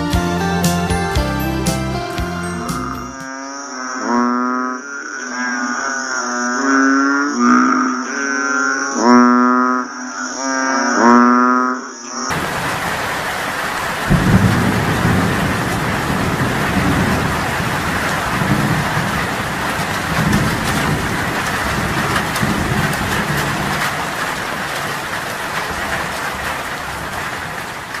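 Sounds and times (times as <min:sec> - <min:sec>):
heavy rain pouring: 0:00.0 - 0:03.2, 0:12.3 - 0:28.0
thunder rumbling: 0:12.3 - 0:28.0.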